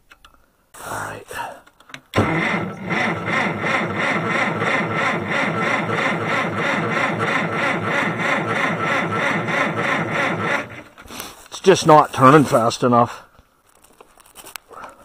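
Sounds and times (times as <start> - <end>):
engine cranking by starter: 2.2 - 11.1.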